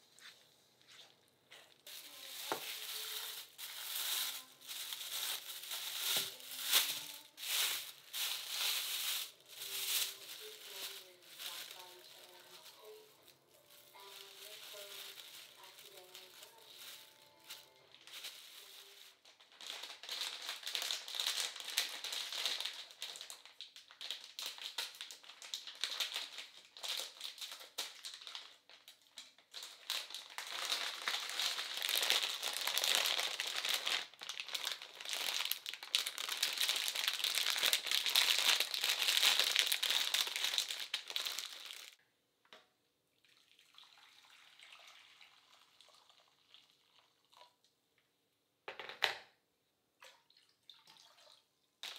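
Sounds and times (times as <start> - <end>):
plastic packaging crinkling: 1.5 - 42.0
water pouring into a steel pan: 43.2 - 47.6.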